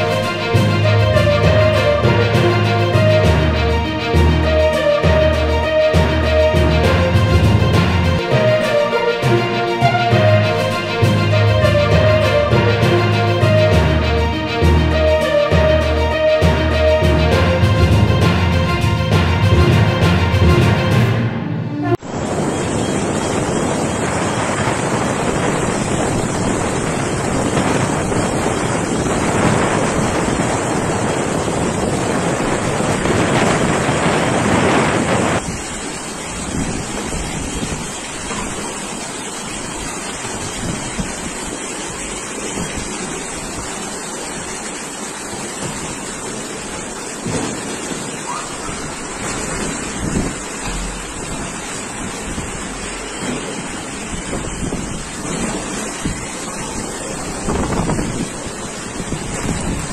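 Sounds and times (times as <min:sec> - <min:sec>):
floodwater rushing: 0:00.0 - 0:59.9
wind buffeting microphone: 0:22.0 - 0:59.9.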